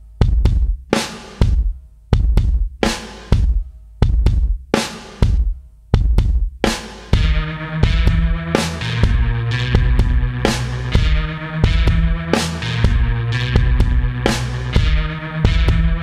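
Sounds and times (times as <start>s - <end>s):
drum beat: 0.0s - 16.0s
steady bass note: 7.2s - 16.0s.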